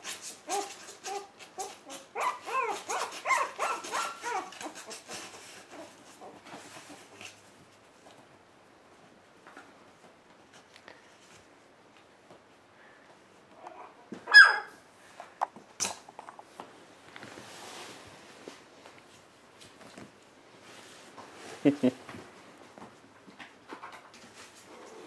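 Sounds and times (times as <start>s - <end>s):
puppy whimpering and yelping: 0.5s - 5.1s, 13.7s - 14.8s.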